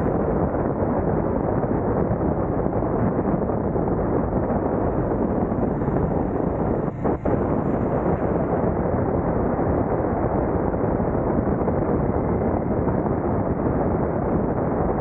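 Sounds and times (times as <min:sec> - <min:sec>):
motorcycle engine: 0:00.0 - 0:11.4
wind rush on microphone: 0:00.0 - 0:15.0.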